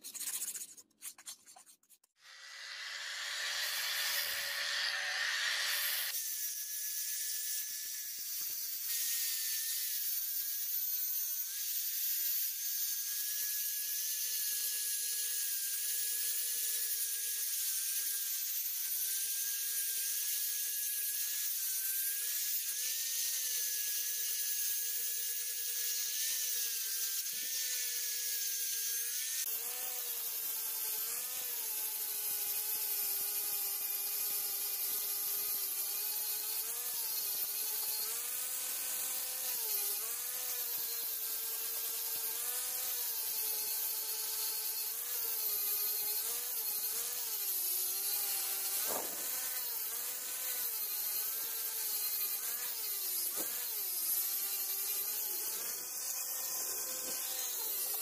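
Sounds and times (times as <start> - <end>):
grinding hiss on steel: 2.2 - 6.2
angle grinder motor whine: 2.2 - 6.3, 33.4 - 58.0.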